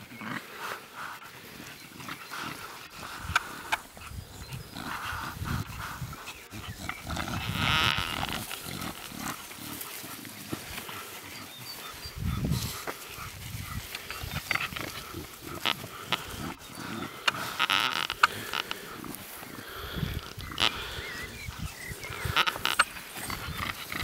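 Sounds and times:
dogs growling: 0:00.0 - 0:24.0
sharp clicks: 0:17.2 - 0:18.8, 0:22.2 - 0:23.0.

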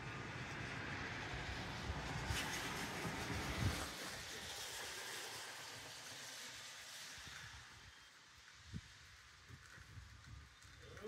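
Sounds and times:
car passing on wet street: 0:00.0 - 0:11.0.

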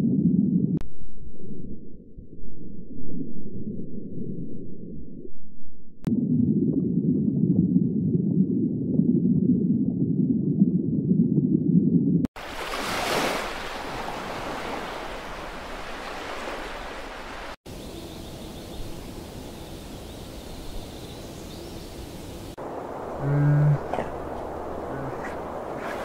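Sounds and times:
rushing water-like noise: 0:12.4 - 0:17.6, 0:22.5 - 0:26.0.

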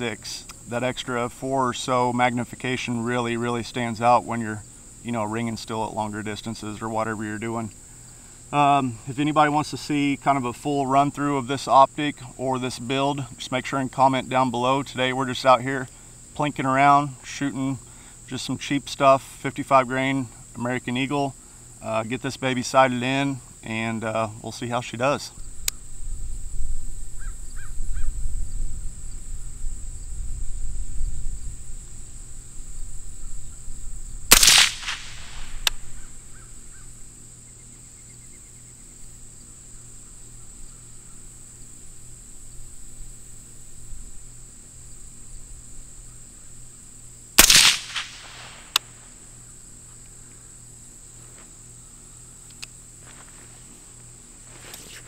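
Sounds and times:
crickets chirring: 0:00.0 - 0:55.0
suppressed rifle shots: 0:34.3 - 0:36.2, 0:47.4 - 0:49.0.

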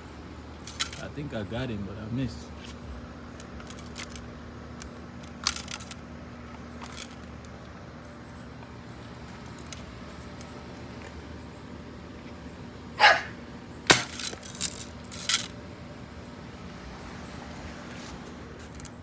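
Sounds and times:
steady low hum: 0:00.0 - 0:19.0
gun clicks and rattles: 0:00.6 - 0:01.0, 0:03.4 - 0:07.7, 0:14.0 - 0:15.5, 0:18.6 - 0:19.0.

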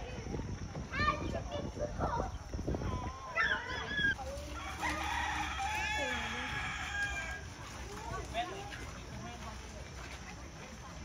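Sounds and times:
fowl crowing: 0:03.5 - 0:07.6.

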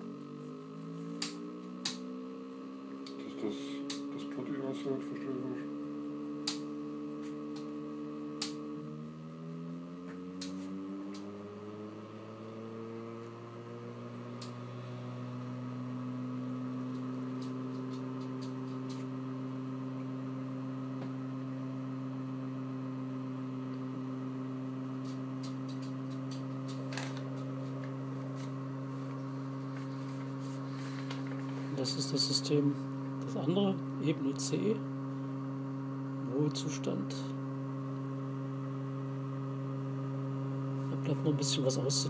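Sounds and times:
electrical hum of magnet rotor: 0:00.0 - 0:42.0.

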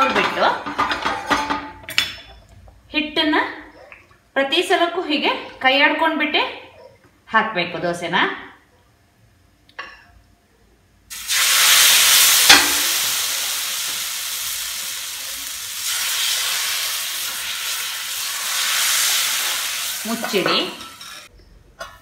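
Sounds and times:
batter sizzling on a hot griddle: 0:11.1 - 0:20.3.

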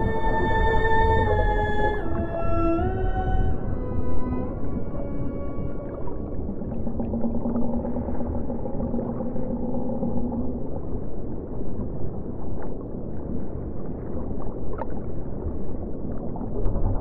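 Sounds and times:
held drone: 0:00.0 - 0:06.2
muffled underwater rumble: 0:00.0 - 0:17.0.

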